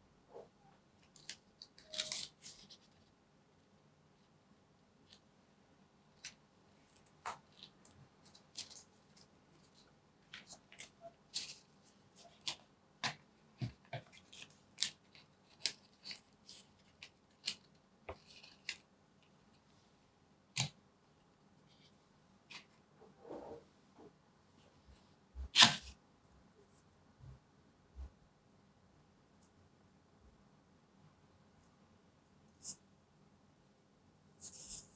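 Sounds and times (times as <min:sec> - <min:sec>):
paper and card inserts rustling: 0:01.0 - 0:03.0.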